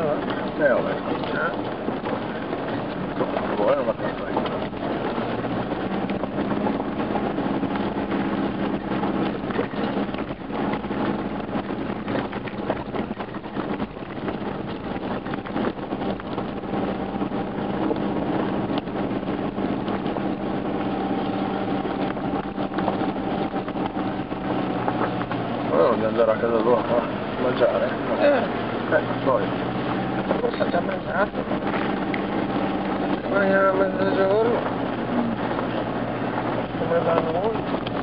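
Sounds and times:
knocks and rattles: 0.0s - 25.7s
car engine running: 0.0s - 38.0s
tyres on gravel track: 0.0s - 38.0s.

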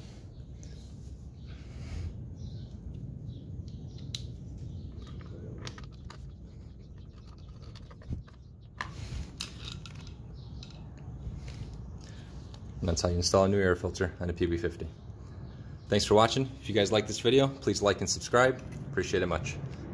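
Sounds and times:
steady low hum: 0.0s - 19.9s
hands handling plastic parts: 4.9s - 11.8s.

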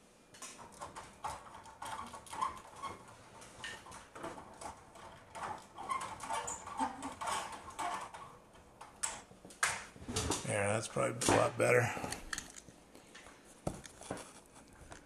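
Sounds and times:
window blind slats rattling: 0.4s - 10.4s.

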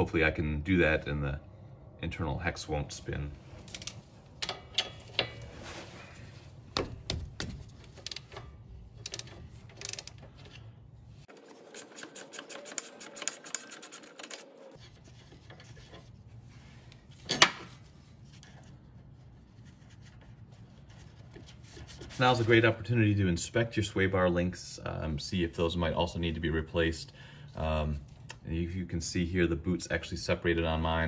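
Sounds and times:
socket ratchet clicking: 9.0s - 10.2s.

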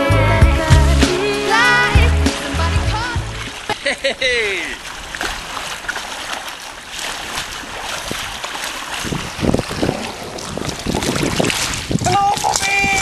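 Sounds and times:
kayak paddle dipping in water: 1.4s - 13.0s
small waves lapping on stones: 4.6s - 13.0s
wind buffeting microphone: 7.2s - 13.0s.

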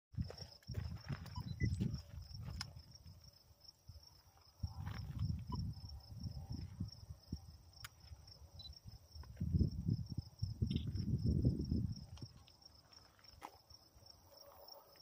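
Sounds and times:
wind buffeting microphone: 0.2s - 3.2s, 4.6s - 7.8s, 8.9s - 12.4s
high insect chirping: 0.2s - 14.9s.

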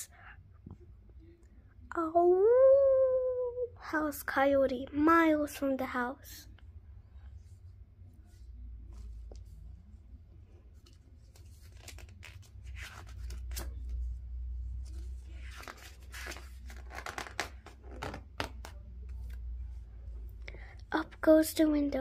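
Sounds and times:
low steady hum: 0.0s - 22.0s
book pages rustling: 8.3s - 19.8s.

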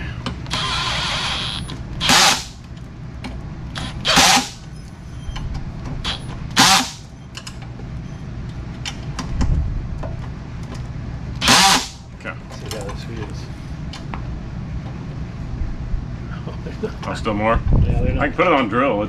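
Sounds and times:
power driver driving screw: 0.5s - 2.6s, 3.8s - 4.7s, 6.0s - 7.1s, 11.4s - 12.0s.

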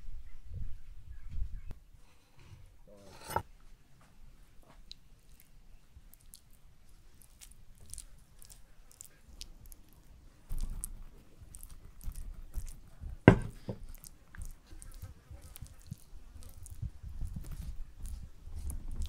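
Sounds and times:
wet squishy clicks: 4.8s - 13.2s, 13.8s - 19.0s
spoon scooping sticky jam: 4.8s - 19.0s.

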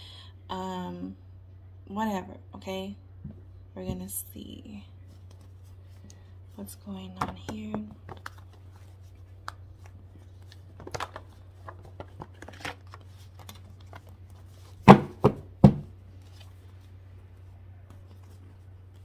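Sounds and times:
low steady hum: 0.0s - 19.0s
cards being shuffled: 5.1s - 6.2s, 7.2s - 15.0s.

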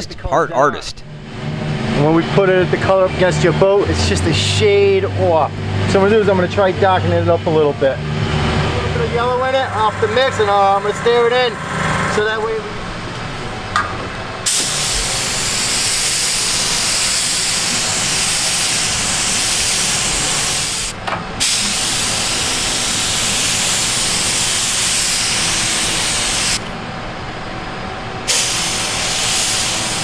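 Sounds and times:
spray gun hissing: 14.3s - 26.6s, 28.3s - 30.0s.

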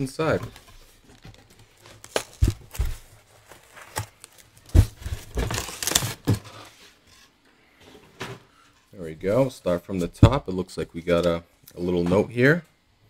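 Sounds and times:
packing material crinkling: 0.9s - 6.4s.

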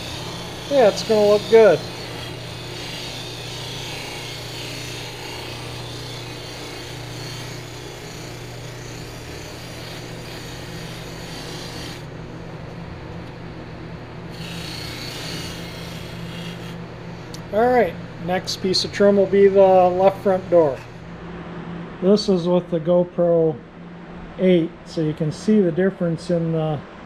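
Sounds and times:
metal strip rubbing on buffing wheel: 0.0s - 12.5s, 14.3s - 17.4s, 18.3s - 21.1s
bench buffer motor hum: 0.0s - 22.4s.

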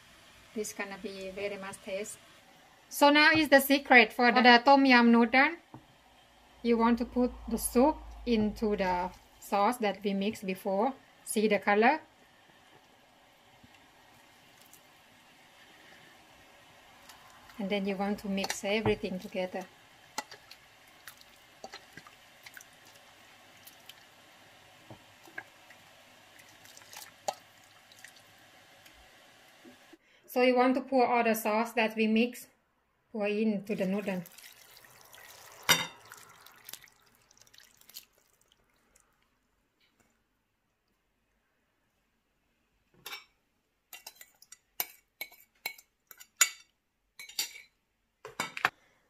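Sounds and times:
wet squishing of stirring: 13.6s - 14.9s, 16.9s - 17.7s, 18.4s - 24.2s, 24.9s - 28.3s, 33.7s - 39.4s.

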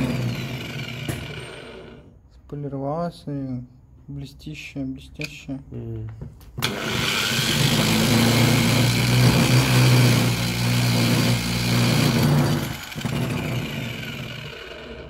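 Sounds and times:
angle grinder polishing: 0.0s - 2.1s, 6.6s - 15.0s.

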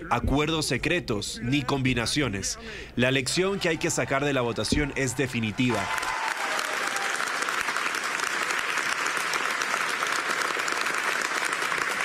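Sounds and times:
crowd applauding: 3.5s - 12.0s.

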